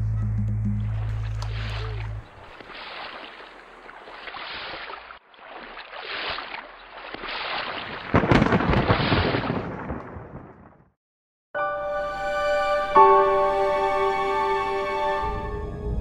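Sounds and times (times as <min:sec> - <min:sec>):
rumbling thunder: 0:08.1 - 0:10.9.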